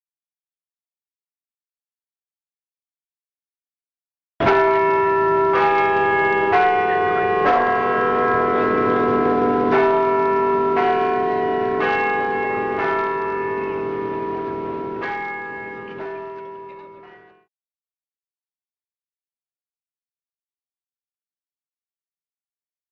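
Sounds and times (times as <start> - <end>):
bells ringing: 4.4 - 17.5.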